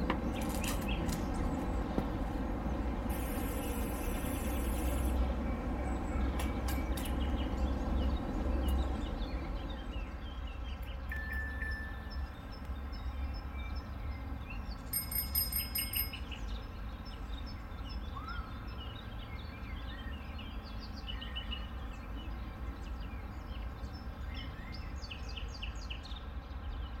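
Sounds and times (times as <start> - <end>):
birds chirping: 0.0 - 27.0
chime ringing: 3.1 - 5.2, 11.1 - 12.4, 14.9 - 16.4.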